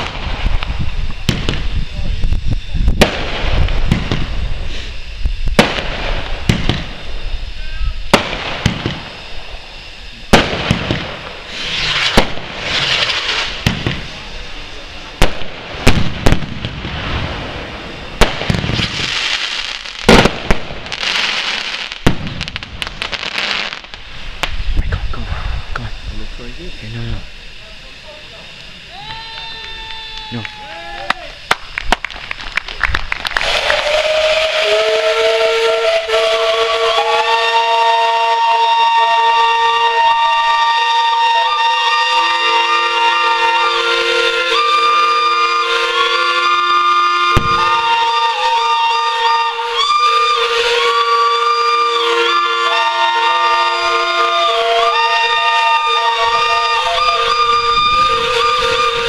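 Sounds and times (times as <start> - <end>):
firework hiss: 0.0 - 59.0
fireworks banging: 0.0 - 59.0
steam locomotive whistles: 4.2 - 8.3, 8.9 - 15.2, 33.4 - 59.0.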